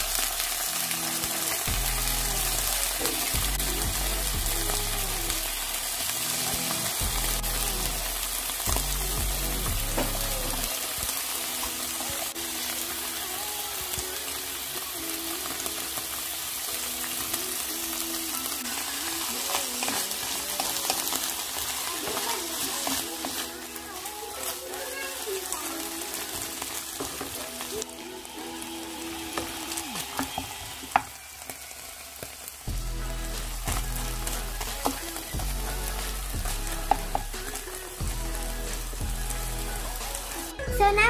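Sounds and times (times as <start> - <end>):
tuna sizzling in a pan: 0.0 - 40.6
background music: 0.0 - 41.0
wooden spatula stirring: 18.7 - 28.0.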